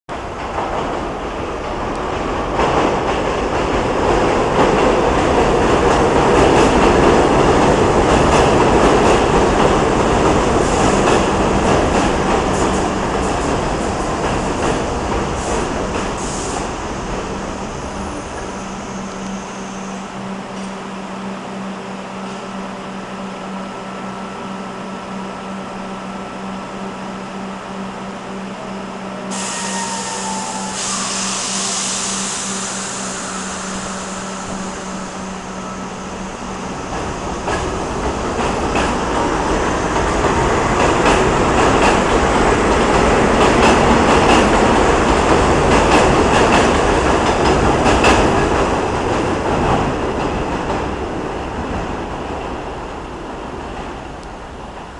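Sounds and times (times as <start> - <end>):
subway train humming: 0.1 - 54.9
train pulling away rumbling: 0.2 - 54.9
air hiss: 29.3 - 36.1.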